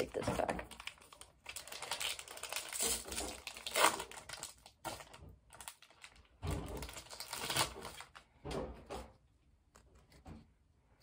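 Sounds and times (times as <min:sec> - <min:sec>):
wrapper crinkling: 0:00.0 - 0:08.3.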